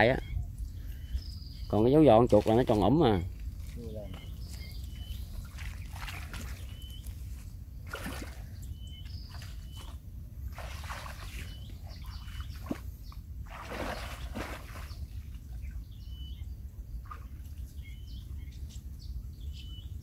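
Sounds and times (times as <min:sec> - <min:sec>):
water sloshing and splashing: 0:02.1 - 0:15.8, 0:17.0 - 0:17.8.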